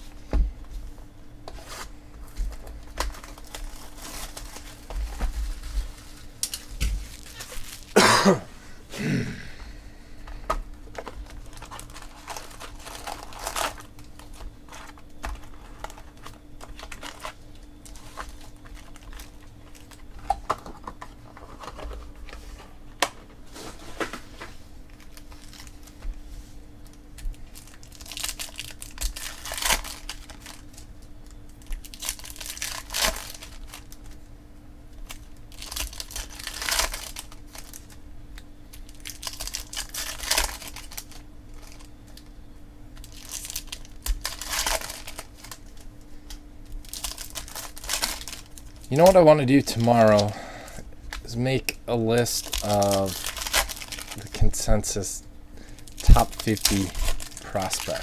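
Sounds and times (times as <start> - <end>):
foil wrappers crinkling: 1.5 - 8.1, 10.2 - 22.6, 24.8 - 26.2, 26.8 - 34.3, 34.9 - 58.0
foil packs tearing: 2.6 - 8.1, 11.0 - 20.2, 24.9 - 26.0, 27.2 - 34.2, 35.0 - 38.0, 38.8 - 42.3, 43.0 - 45.9, 46.8 - 50.4, 51.9 - 58.0.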